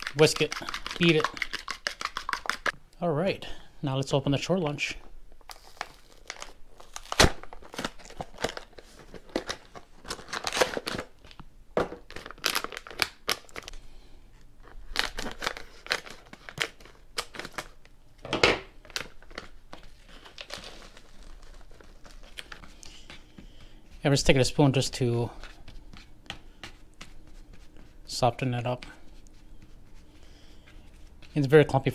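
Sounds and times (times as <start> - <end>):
packaging crinkling and tearing: 5.4 - 13.8, 14.6 - 17.9, 18.8 - 23.3.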